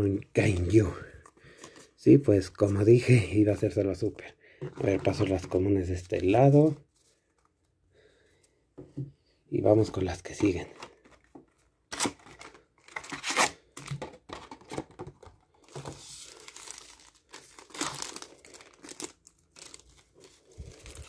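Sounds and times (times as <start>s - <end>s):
foil packs crinkling: 15.5s - 21.0s.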